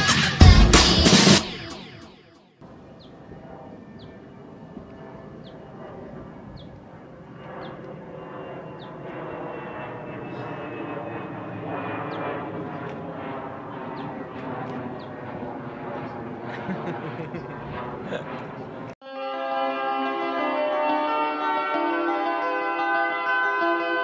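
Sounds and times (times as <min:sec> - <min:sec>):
drone propellers whirring: 0:02.7 - 0:19.0.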